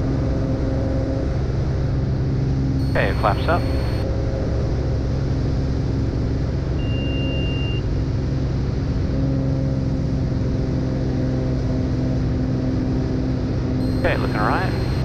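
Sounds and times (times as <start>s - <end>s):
high beep: 2.8s - 4.0s, 13.8s - 15.0s
aircraft engine and propeller: 7.8s - 15.0s.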